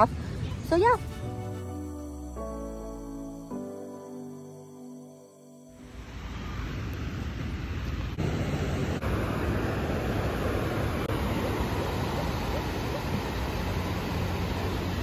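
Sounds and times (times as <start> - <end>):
ocean surf breaking: 6.0 - 15.0.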